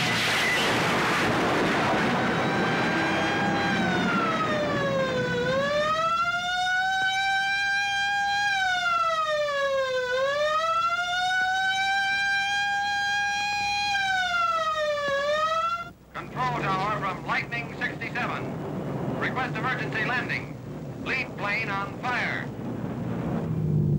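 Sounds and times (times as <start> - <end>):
emergency siren wailing: 0.0 - 20.5
rush of noise: 16.2 - 23.9.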